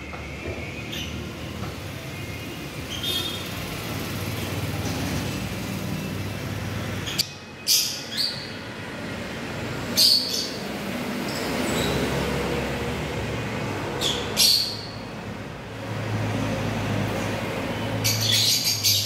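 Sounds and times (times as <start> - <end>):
lovebirds chirping shrilly: 6.9 - 8.6, 9.9 - 10.7, 14.0 - 15.1, 17.8 - 19.0.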